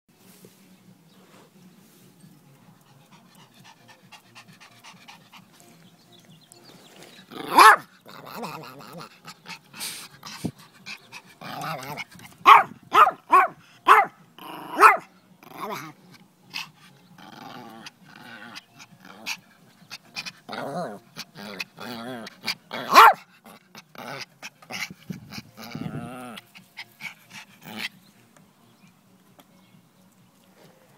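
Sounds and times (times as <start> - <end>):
dog panting: 2.7 - 6.4, 7.1 - 14.0, 16.5 - 17.2, 17.8 - 28.0.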